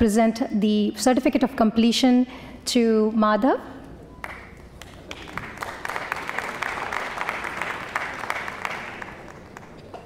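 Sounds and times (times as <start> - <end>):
audience applauding: 4.2 - 10.0.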